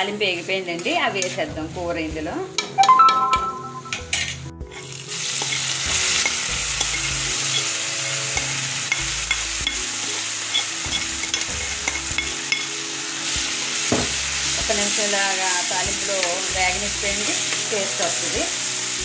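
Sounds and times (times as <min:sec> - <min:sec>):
food sizzling in hot oil: 0:04.7 - 0:19.0.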